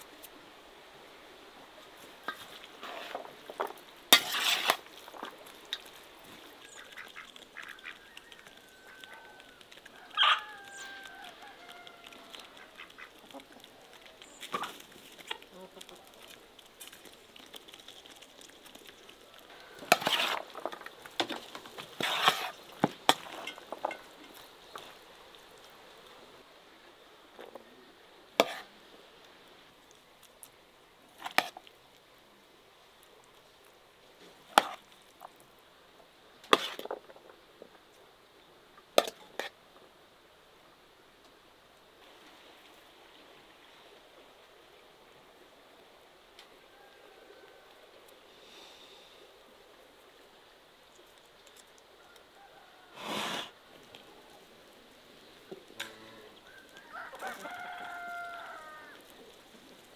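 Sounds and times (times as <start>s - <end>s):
chickens: 6.4s - 16.4s, 55.8s - 59.8s
waterfowl calling: 6.6s - 13.7s
turkey: 6.6s - 13.8s.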